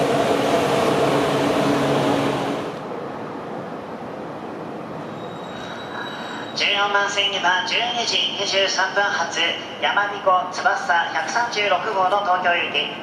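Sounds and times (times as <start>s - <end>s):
high-speed train rushing past: 0.0s - 11.9s.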